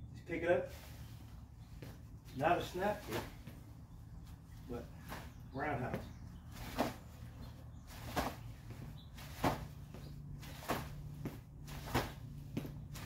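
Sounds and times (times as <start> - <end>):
kicks thudding on training dummy: 9.3 - 9.8.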